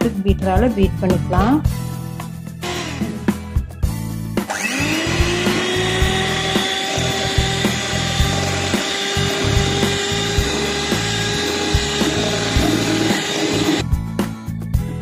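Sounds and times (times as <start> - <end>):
electric hand mixer whining: 2.6 - 3.4, 4.4 - 13.8
beaters whipping cream in steel bowl: 4.5 - 13.8.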